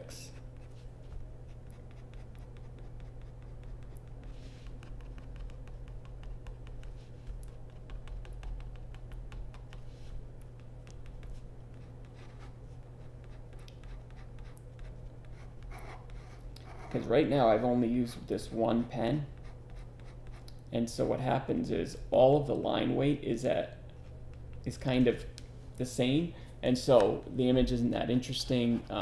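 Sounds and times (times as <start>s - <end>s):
pen scratching on paper: 1.5s - 9.1s, 11.0s - 17.6s.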